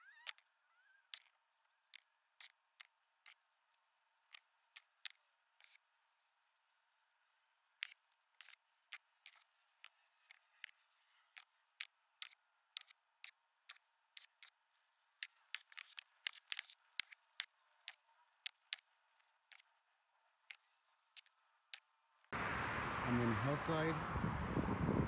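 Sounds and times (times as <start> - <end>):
soft rustle: 13.7 - 22.3.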